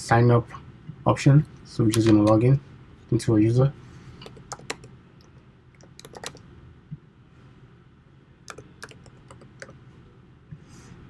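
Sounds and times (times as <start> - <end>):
computer keyboard typing: 4.2 - 4.9, 5.8 - 6.4, 8.5 - 9.7.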